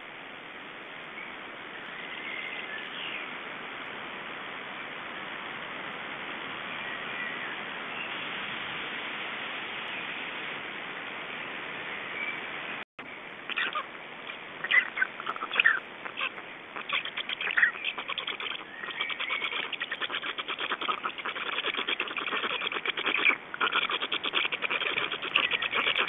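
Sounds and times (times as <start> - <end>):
songbirds chirping: 12.0 - 26.0
stork chicks chattering: 13.5 - 26.0.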